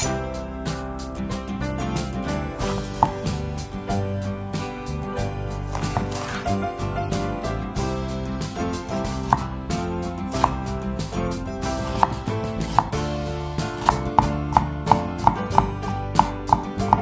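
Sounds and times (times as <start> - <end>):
knife slicing pepper on wooden board: 2.6 - 3.4, 5.7 - 6.6, 9.0 - 9.6, 10.3 - 10.7, 11.7 - 13.0, 13.6 - 17.0.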